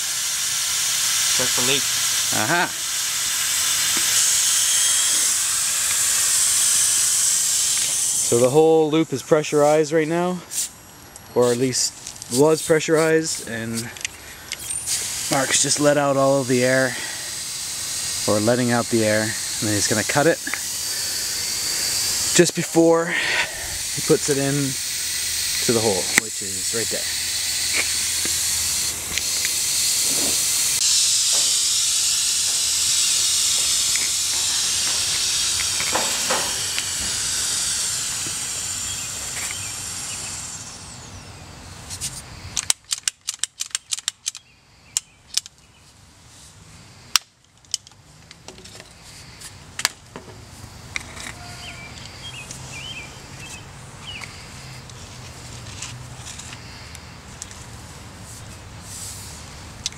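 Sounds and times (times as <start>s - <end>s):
compressed air hissing from pipe: 0.0s - 8.6s, 9.7s - 10.8s, 12.3s - 42.6s, 50.5s - 59.9s
ratcheting pipe cutter clicking: 0.2s - 8.4s, 13.8s - 22.7s, 23.3s - 40.4s, 42.6s - 45.6s.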